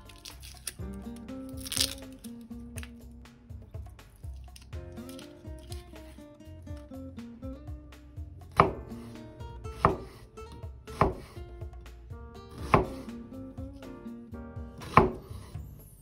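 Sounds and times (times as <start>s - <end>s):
soft background music: 0.0s - 16.0s
knife cutting onion on board: 7.9s - 14.0s, 14.8s - 15.6s.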